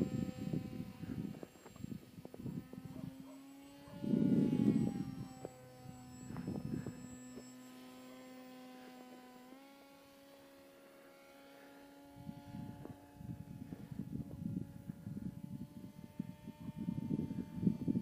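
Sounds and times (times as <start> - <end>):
wind buffeting microphone: 0.0 - 3.2, 3.8 - 7.2, 12.2 - 18.0
model plane motor droning: 0.0 - 18.0.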